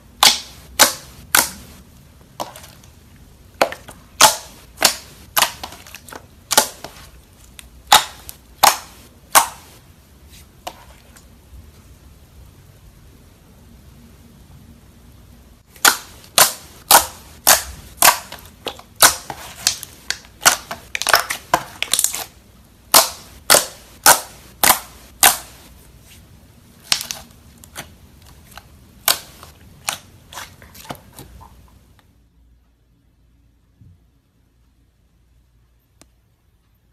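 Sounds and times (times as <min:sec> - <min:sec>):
slime popping and clicking: 0:07.9 - 0:09.7.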